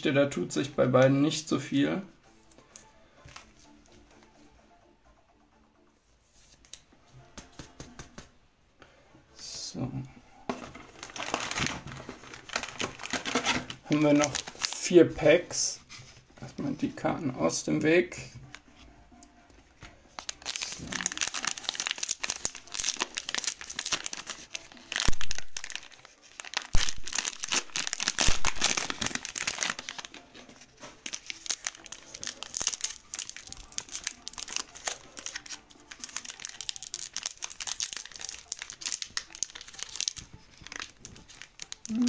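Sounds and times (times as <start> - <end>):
plastic wrapper crinkling: 10.5 - 15.6, 20.1 - 42.0.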